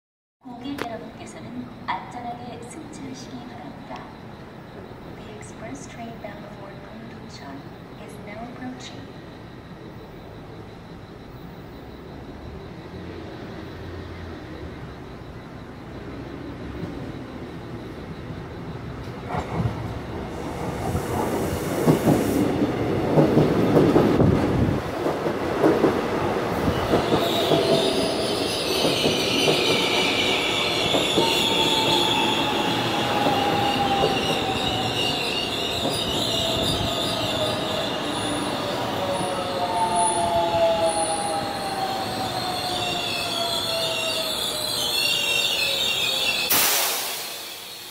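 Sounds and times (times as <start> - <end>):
train braking whine: 0.5 - 47.9
high wheel squeal: 26.6 - 47.9.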